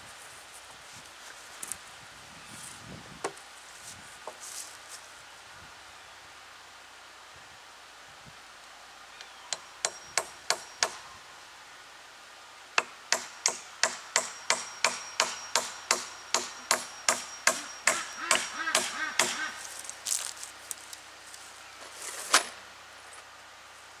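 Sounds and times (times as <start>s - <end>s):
hammer blows on wooden rail: 12.8s - 19.5s.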